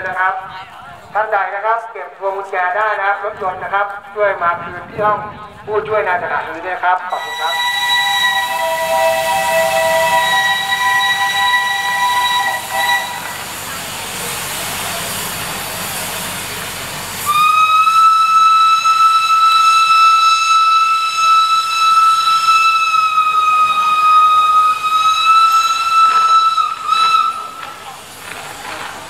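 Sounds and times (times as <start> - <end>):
steam whistle blast: 7.1 - 13.7, 17.2 - 27.9
steam locomotive hissing: 7.1 - 29.0.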